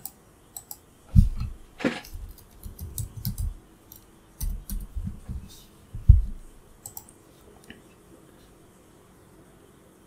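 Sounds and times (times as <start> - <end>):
typing on keyboard: 2.3 - 5.0, 6.8 - 7.1
mouse clicks: 6.8 - 7.8.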